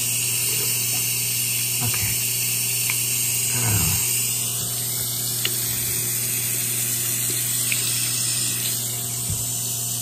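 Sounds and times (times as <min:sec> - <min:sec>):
faucet running into sink: 0:00.0 - 0:10.0
low throat sound: 0:03.4 - 0:04.2.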